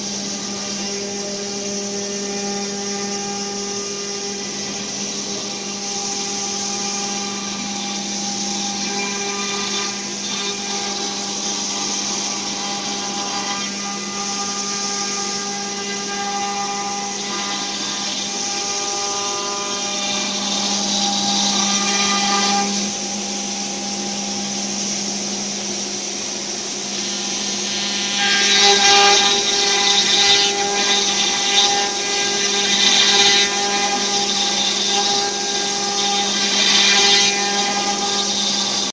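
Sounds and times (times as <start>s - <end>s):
bit cutting wood: 0.0s - 38.9s
router spindle hum and whine: 0.0s - 38.9s.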